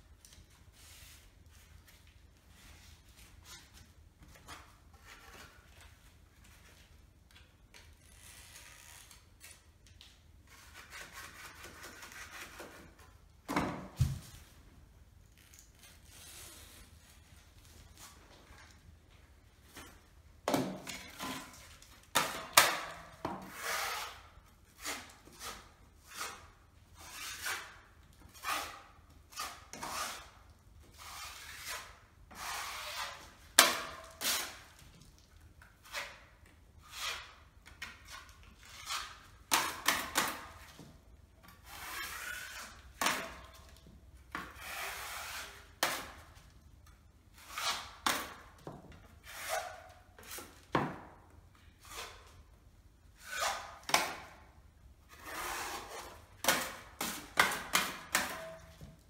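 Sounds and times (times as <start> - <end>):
knife spreading filler on wall: 10.5 - 13.2, 19.7 - 40.9, 41.5 - 46.4, 47.3 - 50.8, 51.8 - 52.5, 55.1 - 58.9
blade scraping against blade: 53.2 - 54.0.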